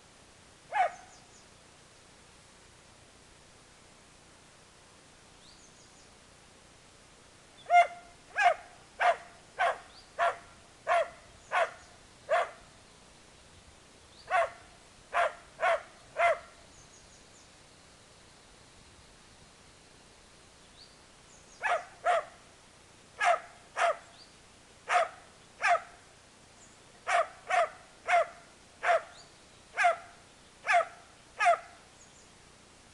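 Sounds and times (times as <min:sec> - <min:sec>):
dog barking angrily: 0:00.7 - 0:01.0, 0:07.7 - 0:12.6, 0:14.3 - 0:14.6, 0:15.2 - 0:16.5, 0:21.6 - 0:22.3, 0:23.2 - 0:24.0, 0:24.9 - 0:25.9, 0:27.1 - 0:29.1, 0:29.8 - 0:30.1, 0:30.7 - 0:31.7.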